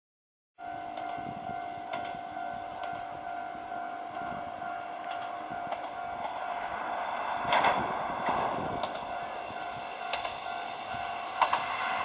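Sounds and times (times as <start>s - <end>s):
level crossing bell ringing: 0.6s - 6.6s, 9.0s - 11.4s
diesel railcar running: 0.6s - 12.0s.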